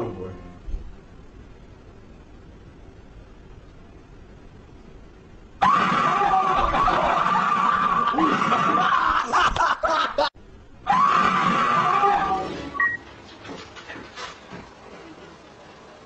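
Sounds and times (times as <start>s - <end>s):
shrill screaming: 5.6s - 9.4s, 10.8s - 12.8s.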